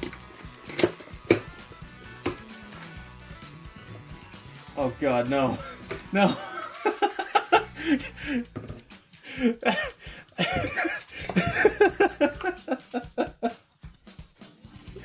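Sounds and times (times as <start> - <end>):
man laughing: 5.4 - 8.6, 9.2 - 13.8.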